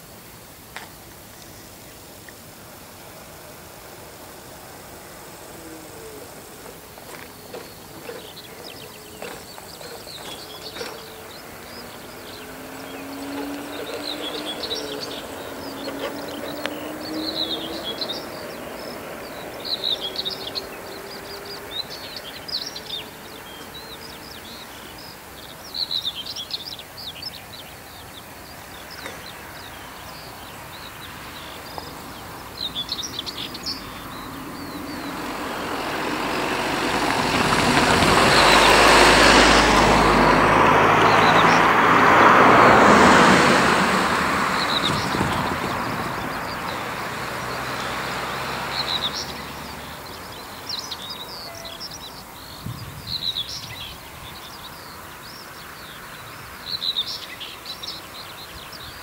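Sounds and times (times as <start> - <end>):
car engine and tyre noise: 0.0 - 59.0
small birds chirping: 0.0 - 59.0
motorcycle engine droning: 3.0 - 25.3.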